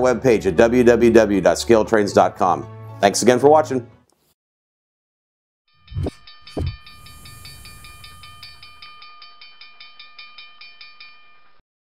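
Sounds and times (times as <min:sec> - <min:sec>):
railroad crossing bell ringing: 0:05.8 - 0:11.6
heavy thump: 0:06.0 - 0:06.8
hiss: 0:06.6 - 0:08.8.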